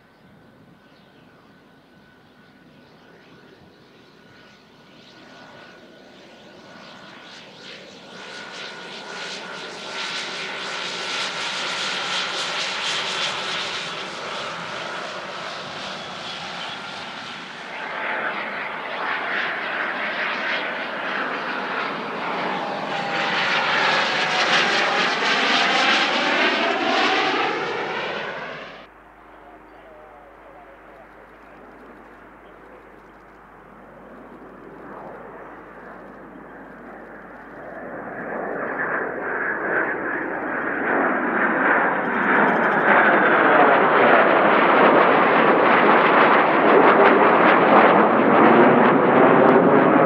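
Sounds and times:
jet passing overhead: 0:00.0 - 0:50.0
turboprop engine running: 0:09.6 - 0:44.6.

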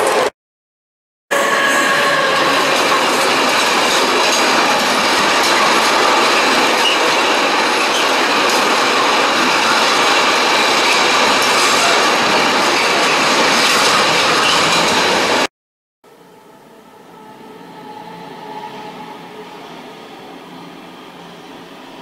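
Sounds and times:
train wheels rolling on rail: 0:01.7 - 0:15.5.

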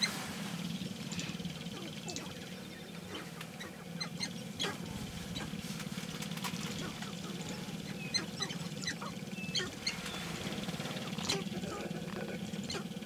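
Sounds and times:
grouse clucking and chirping: 0:00.0 - 0:13.0
steady low hum: 0:00.0 - 0:13.0.

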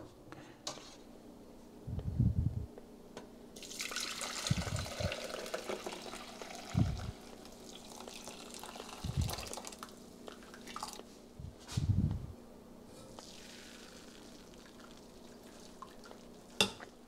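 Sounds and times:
water poured through strainer: 0:03.6 - 0:11.0, 0:13.2 - 0:16.3.

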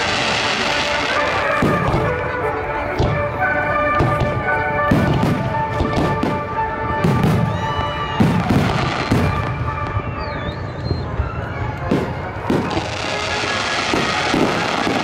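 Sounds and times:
music playing: 0:00.0 - 0:15.0.

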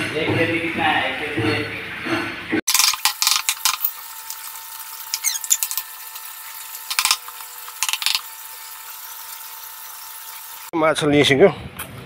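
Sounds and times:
fish scaler scraping scales: 0:05.0 - 0:10.1.

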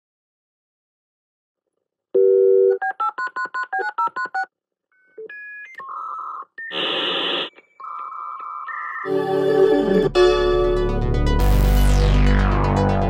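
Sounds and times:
touch-tone dialing beeps: 0:02.8 - 0:09.1.

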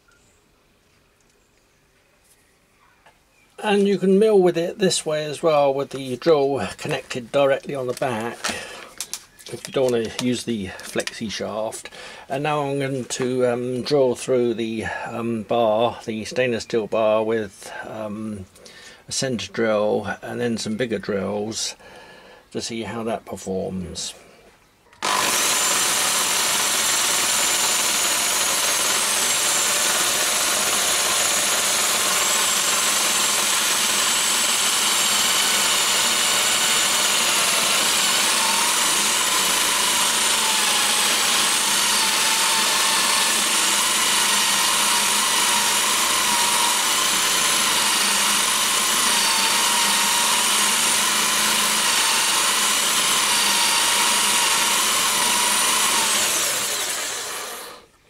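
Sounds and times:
electric drill motor whine: 0:25.0 - 0:57.9.

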